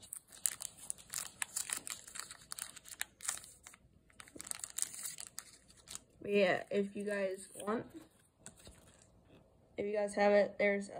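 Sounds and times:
foil wrapper crinkling and tearing: 0.0s - 6.2s.

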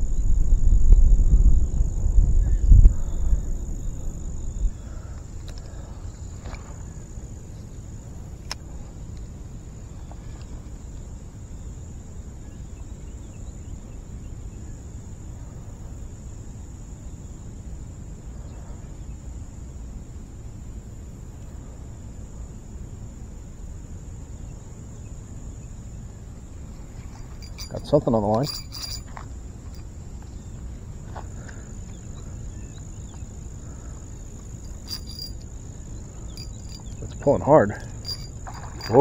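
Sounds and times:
low rumble: 0.0s - 4.8s
high-pitched insect drone: 24.1s - 39.0s.

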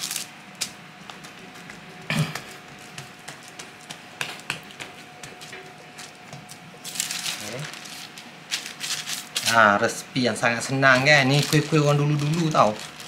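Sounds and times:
hands patting dough: 0.0s - 9.5s.

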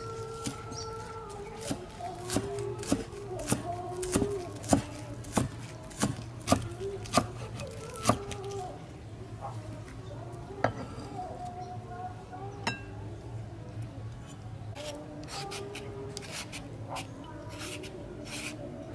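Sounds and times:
cleaver chopping on wooden board: 1.6s - 7.3s.

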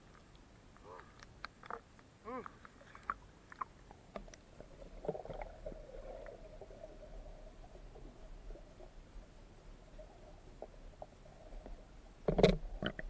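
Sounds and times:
underwater bubbling gurgling: 2.8s - 13.0s.

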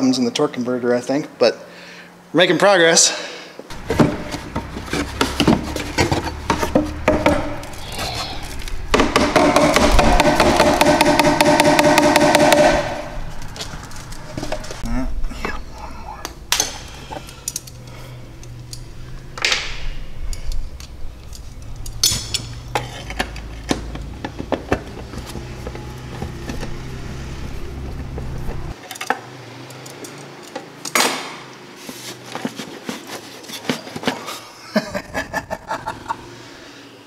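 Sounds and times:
low background hum: 3.1s - 28.8s.

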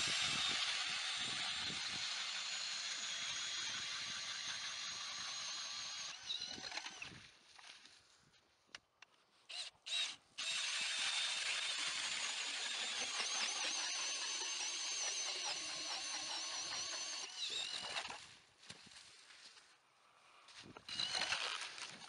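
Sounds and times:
cordless drill motor whine: 0.0s - 7.2s, 9.5s - 18.2s, 20.9s - 21.6s
ice auger cutting ice: 0.0s - 7.3s, 10.4s - 18.2s, 20.8s - 22.0s.

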